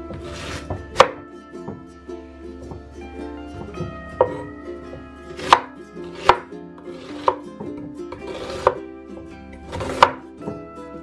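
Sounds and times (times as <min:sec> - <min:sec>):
knife slicing onion on board: 0:00.0 - 0:01.8, 0:05.3 - 0:08.8, 0:09.7 - 0:10.6
plucked-string music: 0:00.0 - 0:11.0.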